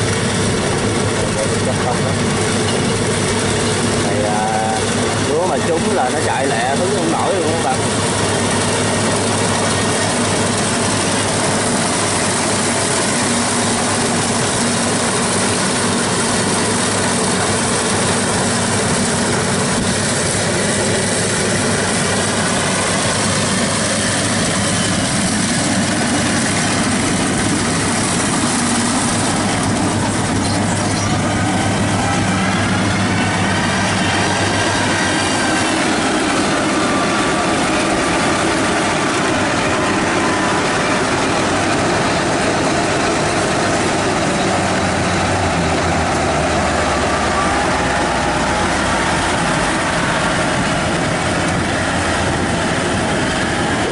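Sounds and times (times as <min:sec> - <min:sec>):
combine harvester droning: 0:00.0 - 0:53.9.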